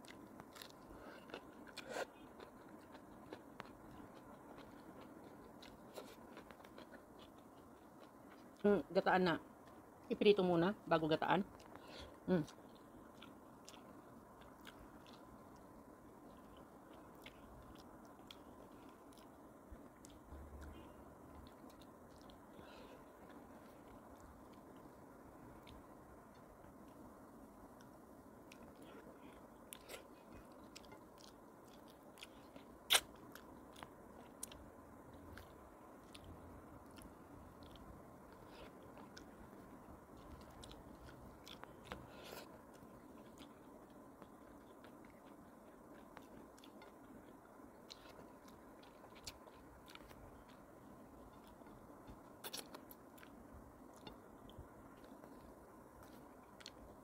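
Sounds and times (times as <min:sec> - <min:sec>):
faint chewing: 0:00.0 - 0:57.0
wet mouth clicks and lip smacks: 0:32.9 - 0:33.3.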